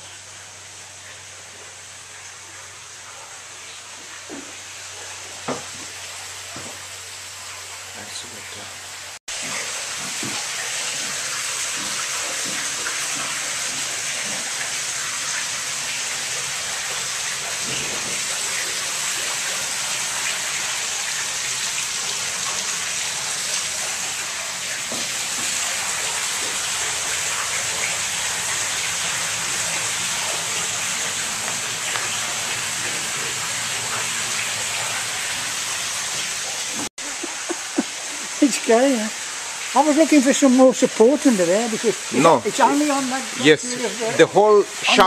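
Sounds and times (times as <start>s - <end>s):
water rushing through screw turbine: 5.1s - 45.0s.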